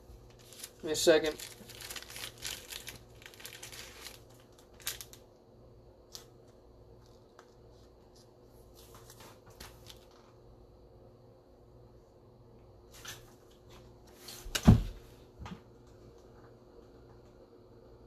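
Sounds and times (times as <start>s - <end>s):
faint steady hum: 0.0s - 18.0s
plastic card sleeves rustling: 0.3s - 5.2s.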